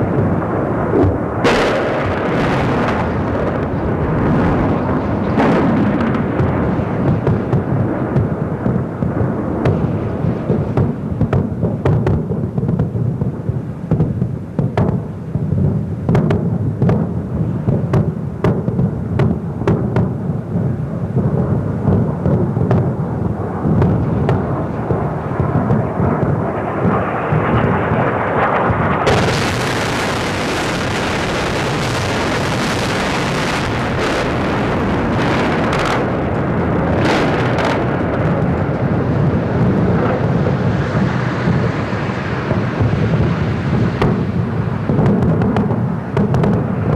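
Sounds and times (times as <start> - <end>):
low rumble of explosions: 0.0 - 46.9
sharp cracks: 23.8 - 38.6.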